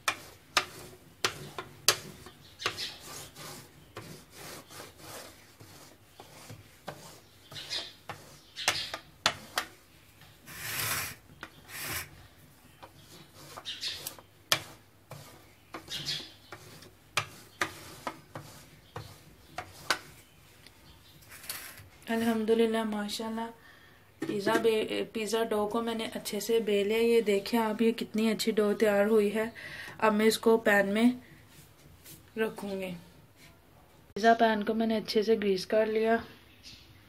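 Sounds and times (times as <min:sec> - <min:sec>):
rolling pin rolling dough: 0:00.0 - 0:20.4.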